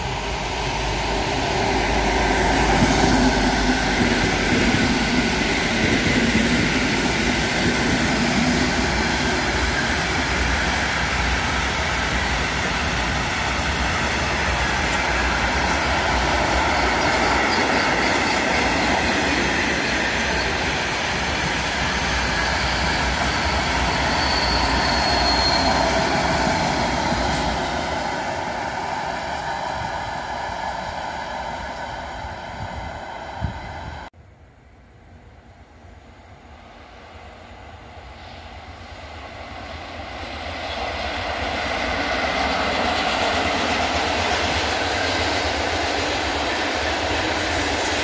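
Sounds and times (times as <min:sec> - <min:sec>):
wheels rattling on rail: 0:00.0 - 0:33.9, 0:39.2 - 0:48.0
freight train rolling past: 0:00.0 - 0:48.0
high wheel squeal: 0:14.5 - 0:27.7.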